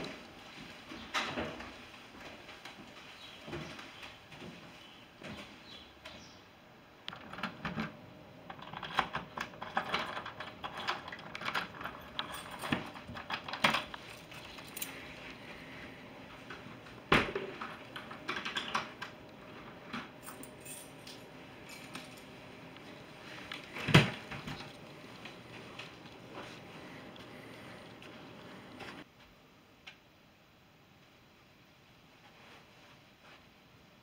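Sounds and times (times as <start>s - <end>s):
keys jangling: 9.6s - 15.0s, 20.2s - 22.3s.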